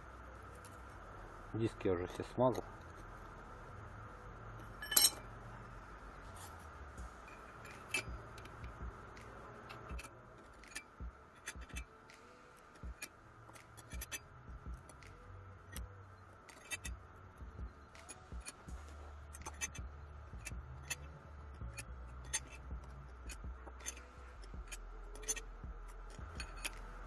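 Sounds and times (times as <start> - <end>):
metal discs clicking and clinking: 4.7 - 5.3, 7.2 - 8.8, 16.5 - 17.0, 19.3 - 19.8, 20.4 - 26.9.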